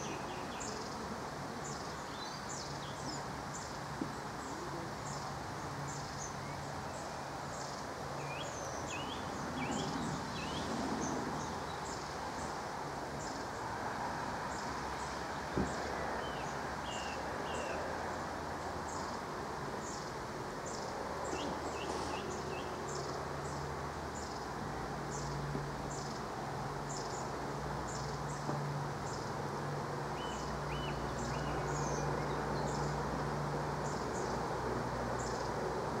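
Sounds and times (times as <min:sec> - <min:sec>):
rain falling on trees and pond: 0:10.2 - 0:36.0.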